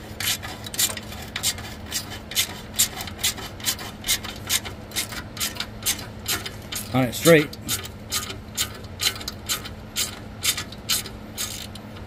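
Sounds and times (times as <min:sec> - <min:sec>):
hand ratchet clicking: 0:00.2 - 0:12.0.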